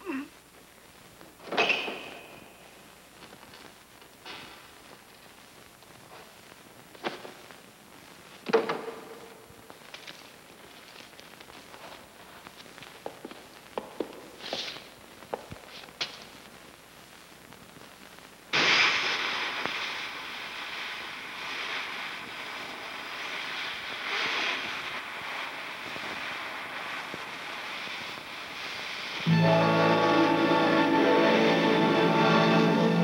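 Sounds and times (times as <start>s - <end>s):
loud rushing hiss: 18.5s - 33.0s.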